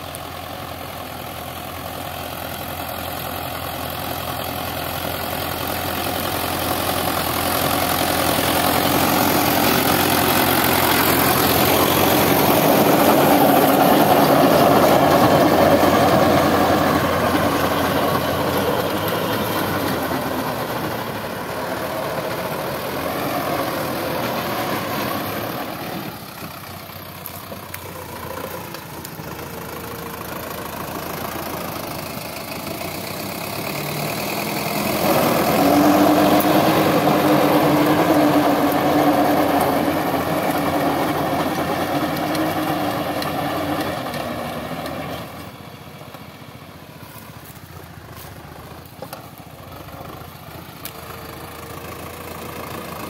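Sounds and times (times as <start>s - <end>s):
tractor diesel engine under load: 0.0s - 53.0s
rotavator churning soil: 6.5s - 29.8s, 33.6s - 45.4s.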